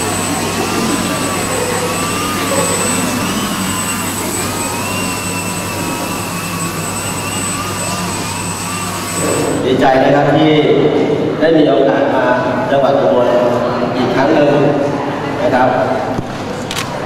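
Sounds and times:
model airplane motor whining: 0.0s - 9.6s.

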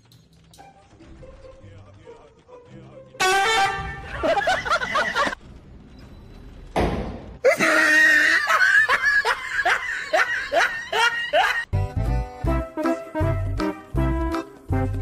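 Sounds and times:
person laughing: 4.0s - 5.4s, 7.5s - 11.7s.

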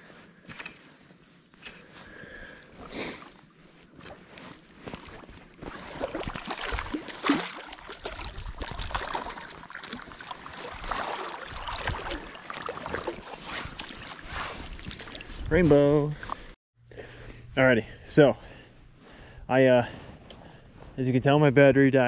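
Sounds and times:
river water splashing: 3.9s - 15.4s.

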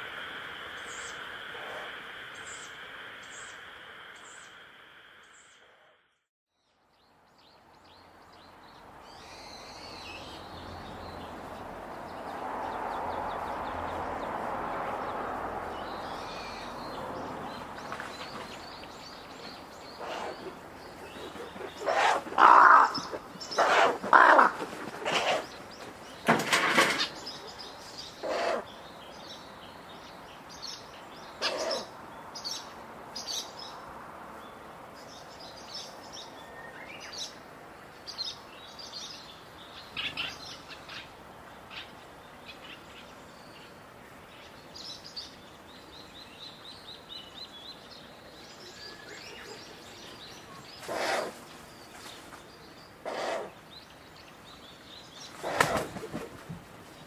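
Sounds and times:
owl chick hissing calls: 0.0s - 4.7s, 20.0s - 20.5s, 21.8s - 24.4s, 25.0s - 25.5s, 28.2s - 28.7s, 31.4s - 31.9s, 50.8s - 51.4s, 53.0s - 53.6s
small birds chirping: 6.5s - 57.0s.

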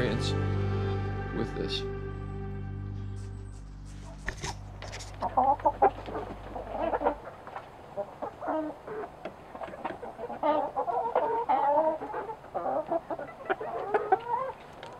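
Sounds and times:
chickens clucking: 4.3s - 14.9s.

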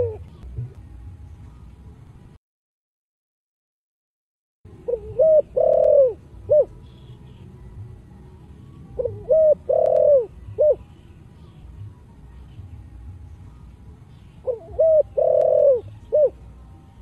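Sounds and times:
dove cooing: 0.0s - 0.3s, 4.8s - 7.1s, 9.0s - 10.9s, 14.4s - 16.5s.

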